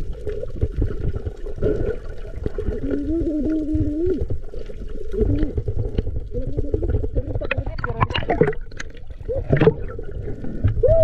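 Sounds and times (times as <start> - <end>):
muffled water gurgling: 0.0 - 11.0
wavering voice-like hum: 2.7 - 4.3, 6.3 - 8.2, 10.8 - 11.0.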